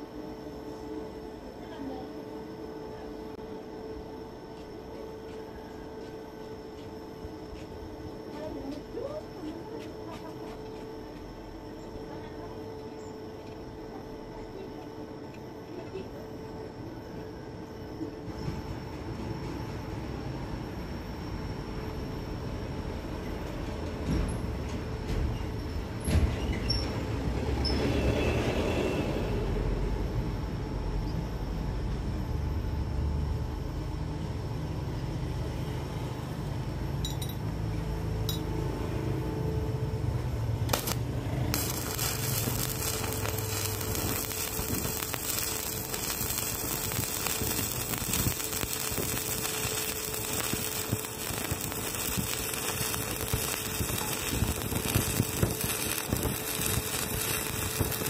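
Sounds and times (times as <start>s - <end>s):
light metal clinks: 37.0s - 37.4s
welding arc crackling: 40.5s - 58.0s.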